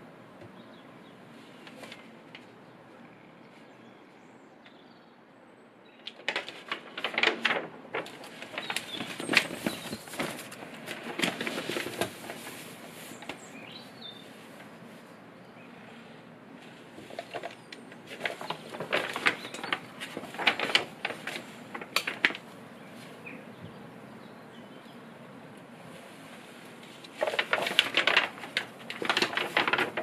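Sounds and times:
paper pages rustling: 1.4 - 2.5, 6.1 - 13.8, 16.6 - 23.2, 26.0 - 30.0.

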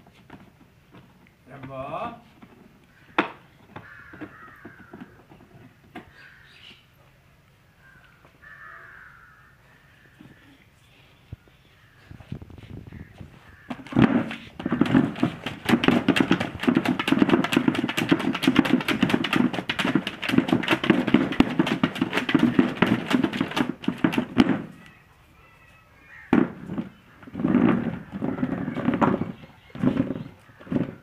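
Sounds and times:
plastic chair clattering on concrete: 0.1 - 6.2, 13.6 - 24.8, 26.2 - 31.0.

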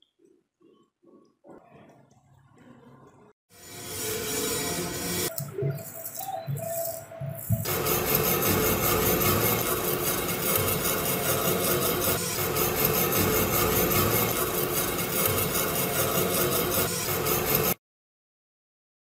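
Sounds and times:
wire brush scrubbing metal: 3.8 - 17.8.

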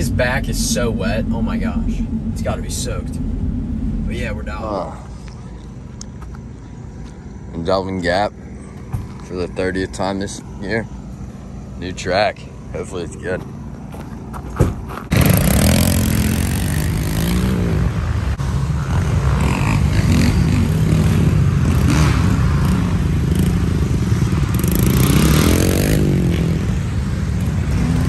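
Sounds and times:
dirt bike engine revving: 0.0 - 5.0, 15.1 - 17.8.

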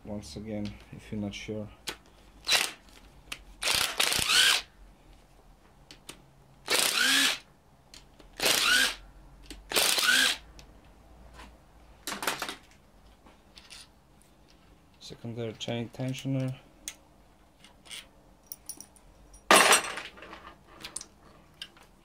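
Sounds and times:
cordless drill whining: 3.6 - 4.7, 6.7 - 7.4, 8.4 - 9.0, 9.7 - 10.4.

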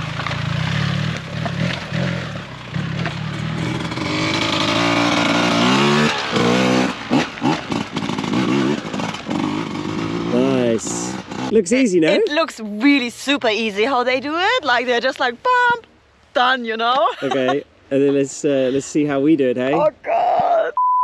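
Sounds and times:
dirt bike engine accelerating: 0.0 - 12.1
motorcycle engine running: 0.0 - 12.1.

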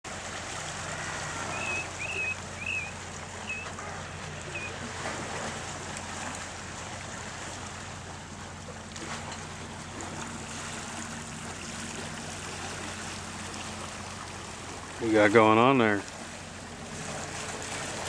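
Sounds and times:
wind: 0.0 - 18.0
surf on rocky shore: 0.1 - 18.0
bird chirping: 1.5 - 3.8, 4.5 - 4.7.

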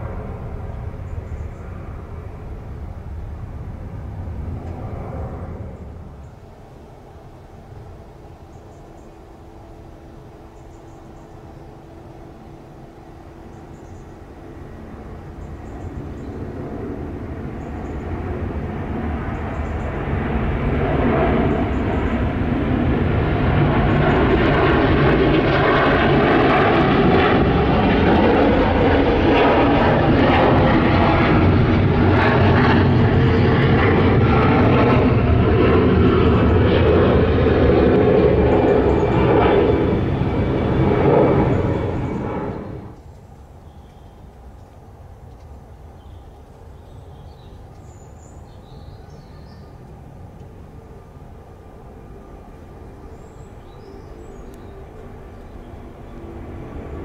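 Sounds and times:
jet airliner engines roaring: 0.0 - 57.0.

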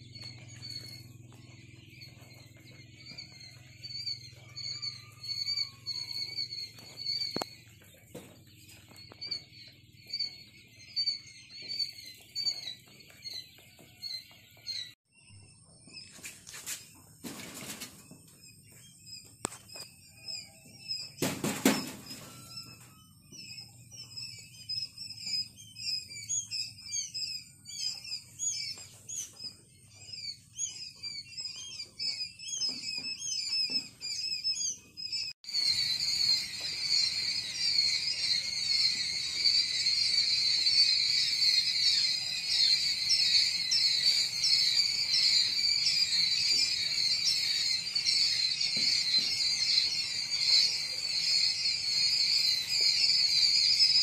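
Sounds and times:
chicks peeping: 0.0 - 54.0.

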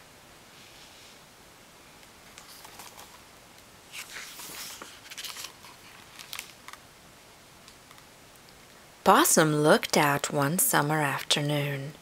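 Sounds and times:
book pages turning: 2.4 - 3.2, 3.9 - 6.8.

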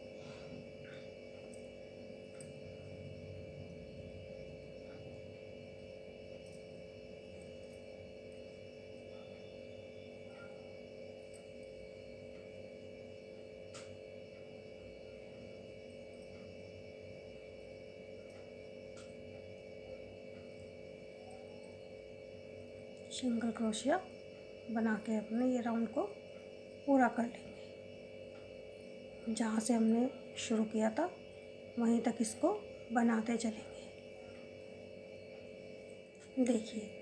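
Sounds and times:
electrical hum: 0.0 - 37.0.

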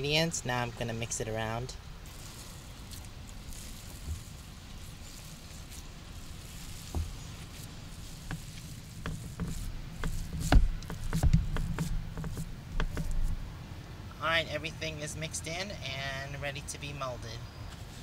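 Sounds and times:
soft thumps: 6.8 - 7.4, 8.2 - 13.4.

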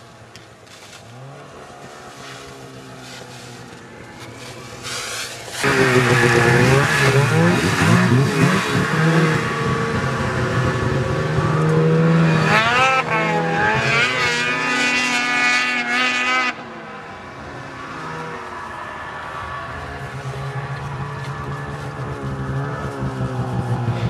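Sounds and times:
snowmobile engine revving: 0.6 - 16.8, 17.6 - 24.0.

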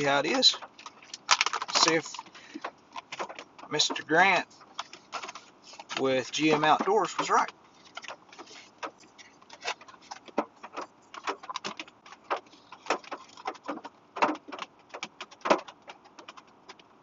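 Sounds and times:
pouch crinkling: 0.3 - 3.4.

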